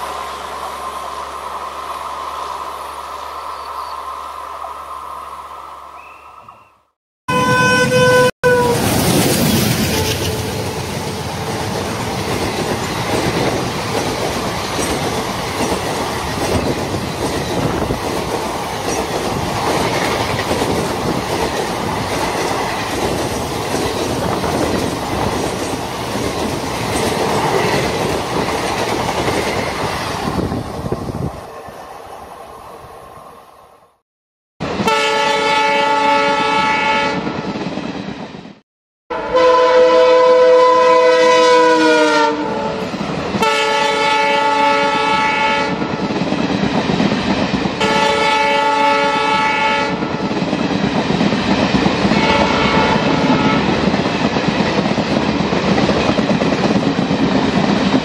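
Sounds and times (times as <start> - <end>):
loud train horn: 7.3 - 9.0, 9.8 - 11.2, 34.7 - 37.4, 39.1 - 45.9, 47.8 - 50.1, 52.1 - 53.8.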